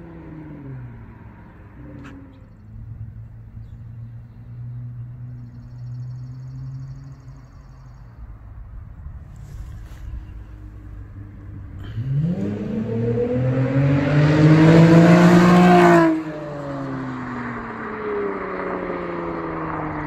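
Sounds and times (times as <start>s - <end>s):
car exhaust drone: 0.0s - 20.0s
bird chirping: 1.4s - 8.5s.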